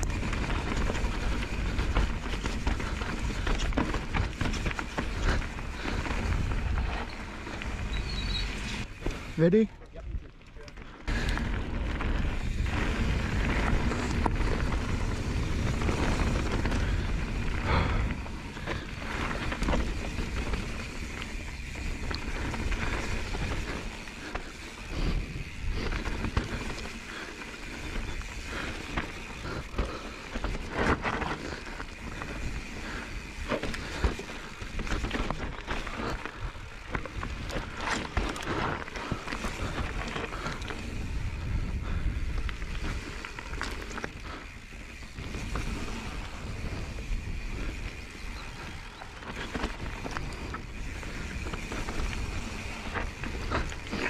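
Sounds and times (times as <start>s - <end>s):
bike tyres rolling over stones: 0.0s - 54.0s
bike knocks and rattles: 28.2s - 41.1s
wind on microphone: 39.5s - 43.1s.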